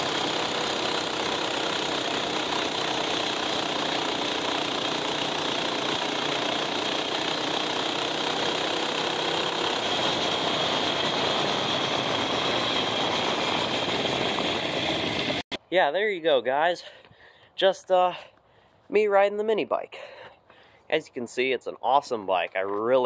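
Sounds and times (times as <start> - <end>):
mini bike engine running: 0.0 - 15.4.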